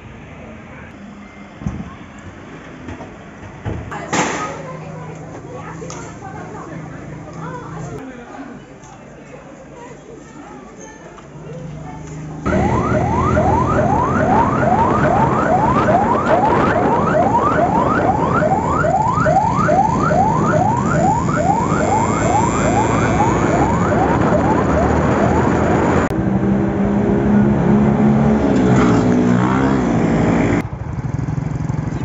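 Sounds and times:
traffic noise: 0:00.0 - 0:08.0, 0:11.1 - 0:32.0
vehicle engine running: 0:12.4 - 0:28.3, 0:29.4 - 0:32.0
police siren yelping: 0:12.5 - 0:26.1.

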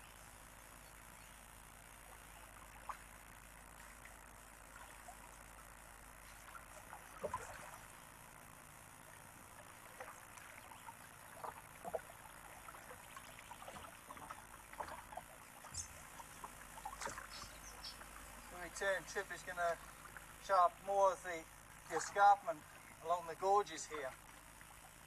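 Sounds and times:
paddle splashes and drips: 0:02.0 - 0:08.4, 0:09.0 - 0:20.5, 0:21.7 - 0:25.0.

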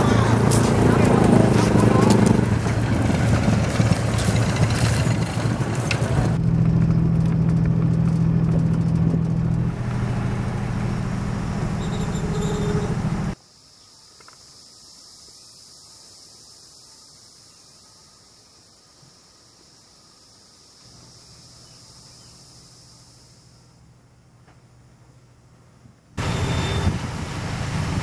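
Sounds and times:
boat engine low drone: 0:00.0 - 0:13.4, 0:23.2 - 0:28.0
motor scooter engine passing: 0:00.0 - 0:13.4.

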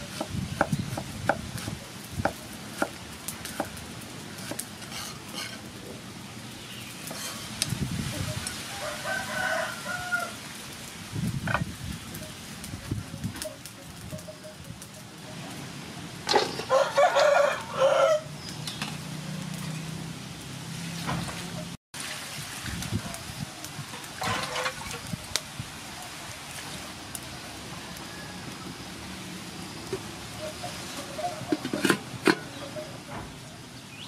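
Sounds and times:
rooster crowing: 0:08.6 - 0:10.5, 0:16.6 - 0:18.5, 0:27.6 - 0:29.0
metal lid clanking on pot: 0:31.5 - 0:32.6.

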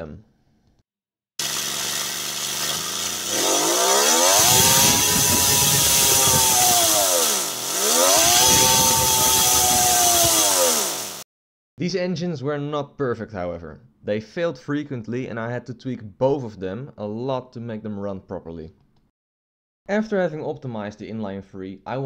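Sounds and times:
compressed-air engine whining: 0:01.4 - 0:11.2.

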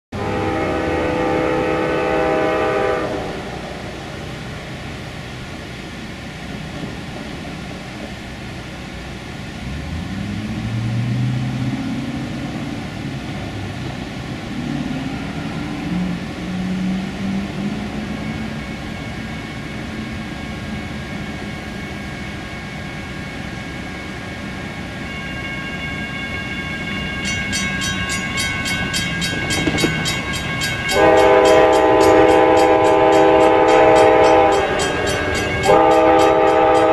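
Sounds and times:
train horn: 0:00.1 - 0:04.0, 0:30.8 - 0:36.9
diesel locomotive rumble: 0:00.1 - 0:36.9.

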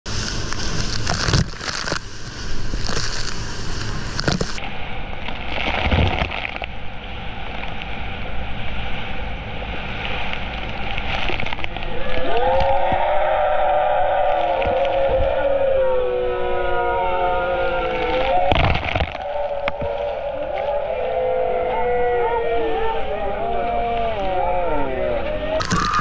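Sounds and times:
boat motor running: 0:00.1 - 0:04.7
sea splashing against boat: 0:00.1 - 0:26.0
wind on microphone: 0:09.6 - 0:26.0.

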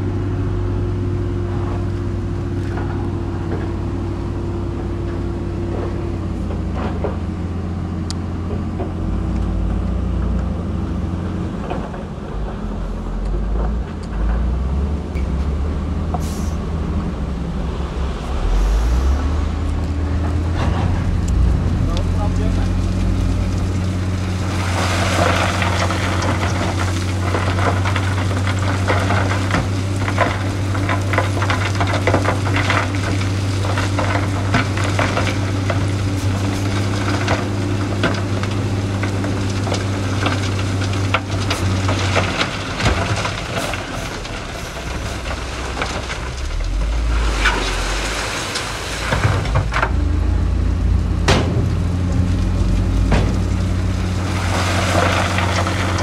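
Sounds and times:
heavy diesel machinery running: 0:00.0 - 0:56.0
stones crackling and clattering: 0:18.1 - 0:56.0.

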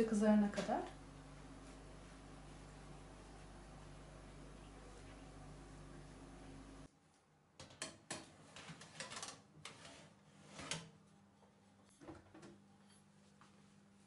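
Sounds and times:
steady low hum: 0:00.0 - 0:06.9.

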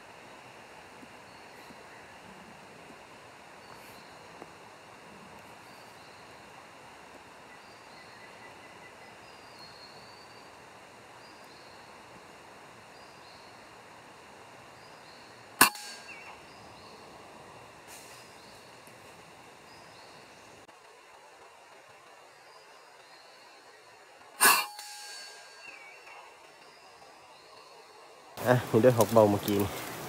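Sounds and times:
faint high chirping: 0:22.2 - 0:28.4.

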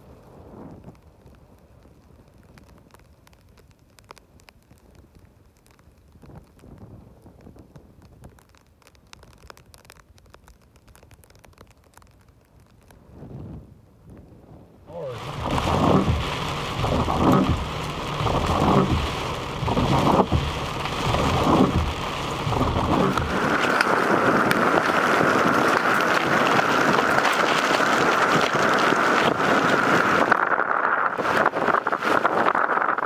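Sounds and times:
heavy rain and wind on car: 0:00.0 - 0:33.0
low thuds: 0:15.1 - 0:26.2.

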